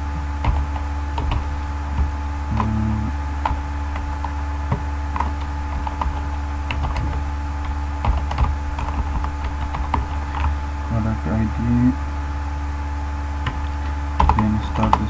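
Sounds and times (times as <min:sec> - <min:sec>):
steady low hum: 0:00.0 - 0:15.0
computer keyboard keystrokes: 0:00.4 - 0:02.7, 0:03.4 - 0:10.6, 0:13.4 - 0:15.0.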